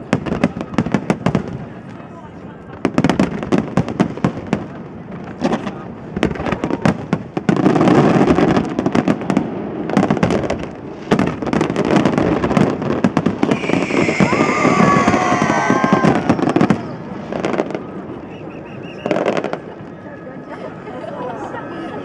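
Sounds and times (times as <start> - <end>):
fireworks crackle: 5.4 - 18.2.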